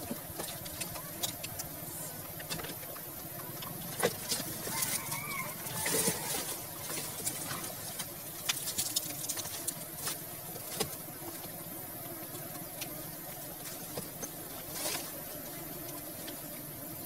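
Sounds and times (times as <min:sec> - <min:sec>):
twigs and grass rustling: 0:00.0 - 0:16.6.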